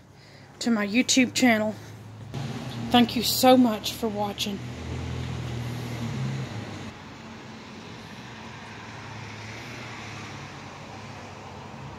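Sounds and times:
mechanical hum with droning tone: 0.0s - 7.4s.

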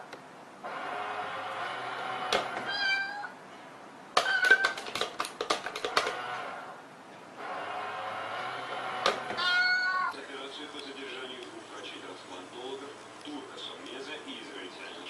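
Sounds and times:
cat meowing: 2.6s - 3.4s, 4.2s - 4.8s, 9.4s - 10.2s
coin bank mechanical clicks: 4.2s - 6.3s.

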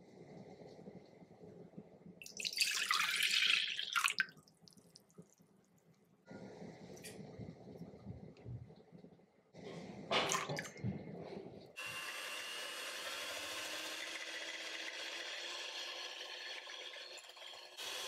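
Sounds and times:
electric hand mixer whining: 11.8s - 18.0s.

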